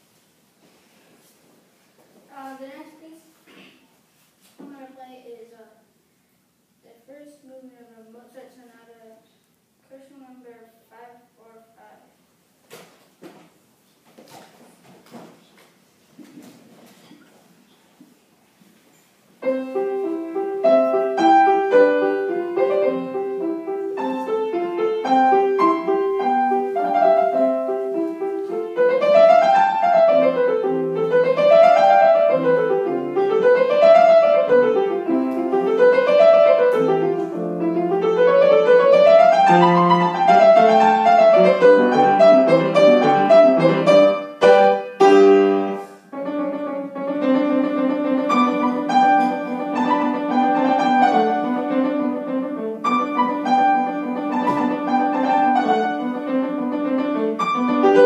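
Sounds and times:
solo grand piano: 19.4 - 58.0.

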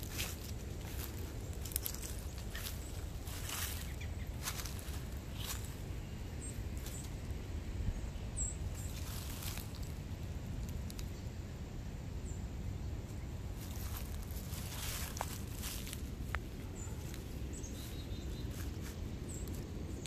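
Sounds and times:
footsteps in dry leaves: 0.0 - 5.9, 8.7 - 10.2, 13.5 - 20.0
steady low rumble: 0.0 - 20.0.

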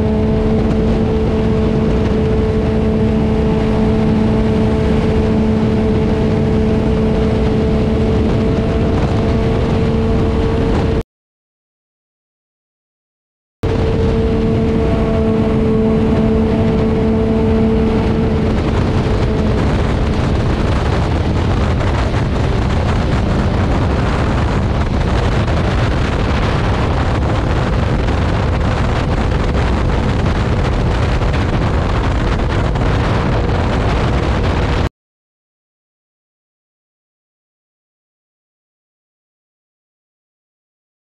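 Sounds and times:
motorcycle engine hum: 0.0 - 11.0, 13.6 - 34.9
wind rushing over microphone: 0.0 - 11.0, 13.6 - 34.9.

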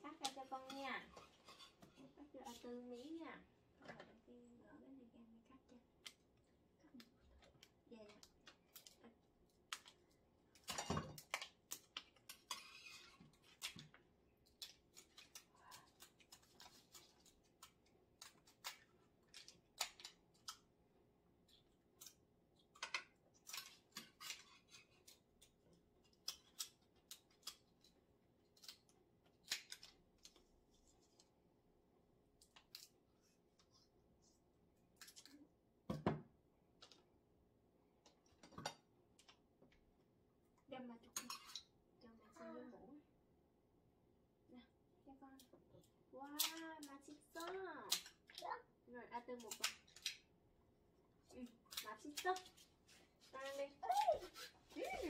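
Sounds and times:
scissors snipping crab shells: 13.4 - 20.7, 22.8 - 30.4, 46.3 - 48.4, 49.3 - 50.3, 51.4 - 52.6.

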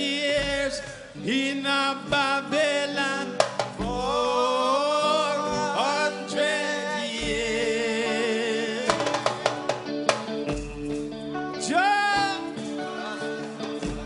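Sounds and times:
wavering sung voices: 0.0 - 9.9, 11.5 - 14.0
guitar: 0.0 - 14.0
hand drums: 3.4 - 4.3, 8.9 - 11.3, 13.4 - 14.0.

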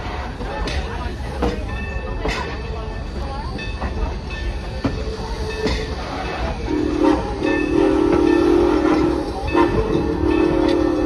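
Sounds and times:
train coaches rumbling over rails: 0.0 - 11.0
steam locomotive whistle: 6.2 - 11.0.

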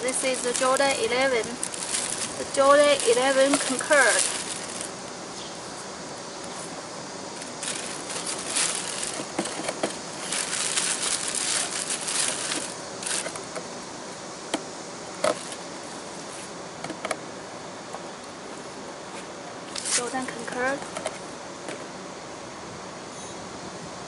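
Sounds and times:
plastic wrapping crinkling: 0.0 - 5.0, 7.4 - 13.5.

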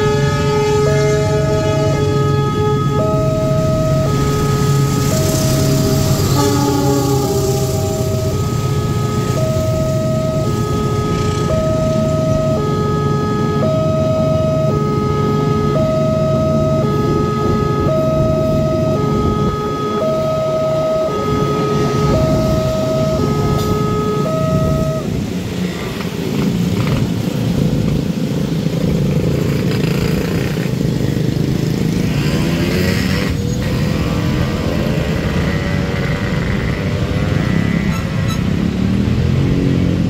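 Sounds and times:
train rumble: 0.0 - 14.3
level crossing alarm: 0.0 - 25.3
motorcycles passing: 0.0 - 40.0.

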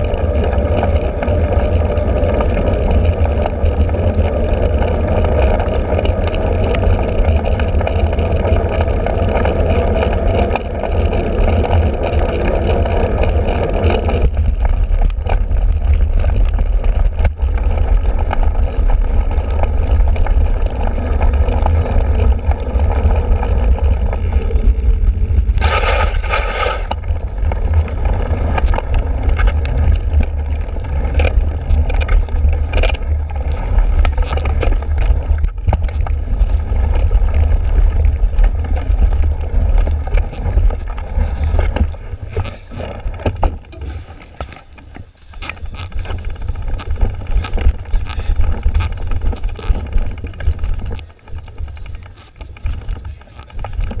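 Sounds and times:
bike tyres rolling: 0.0 - 54.0
wind on microphone: 0.0 - 54.0.

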